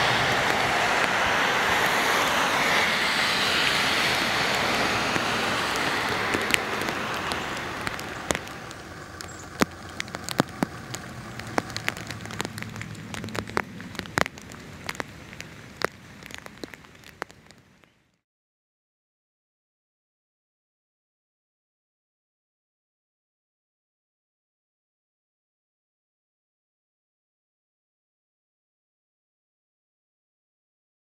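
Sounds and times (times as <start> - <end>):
rain and wet road hiss: 0.0 - 18.2
rainwater drips striking surfaces: 0.0 - 18.2.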